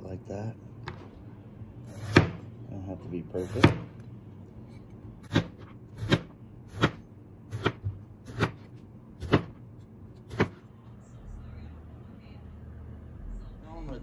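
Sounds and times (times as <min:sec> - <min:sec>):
knife slicing eggplant: 0:01.9 - 0:02.4, 0:03.4 - 0:04.0, 0:05.2 - 0:09.6.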